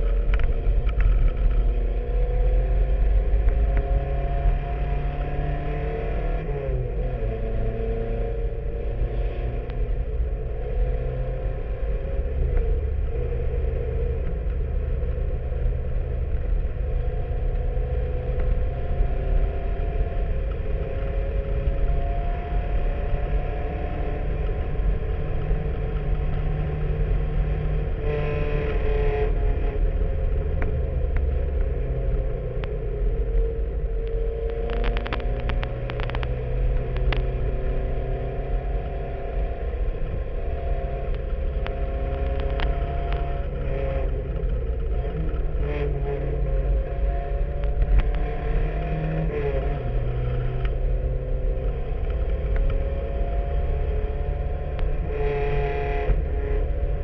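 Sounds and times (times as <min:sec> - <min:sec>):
race car engine running hard: 0:00.0 - 0:57.0.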